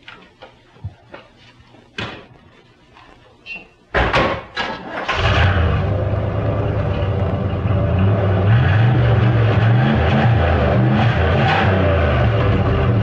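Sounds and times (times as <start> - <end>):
car engine starting and revving: 4.8 - 13.0.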